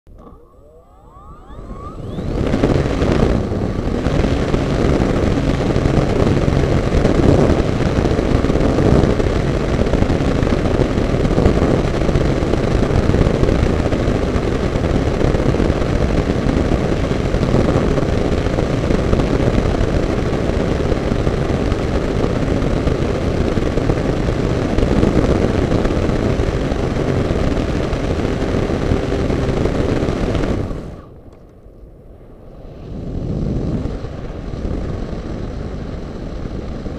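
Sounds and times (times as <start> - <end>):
wind rushing past: 0.1 - 8.0
model glider motor and propeller: 0.1 - 36.9.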